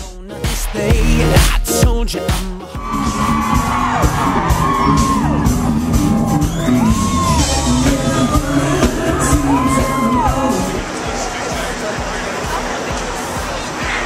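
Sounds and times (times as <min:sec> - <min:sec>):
man singing: 0:00.0 - 0:02.9, 0:07.4 - 0:11.3
loud pop-rock band: 0:00.0 - 0:14.0.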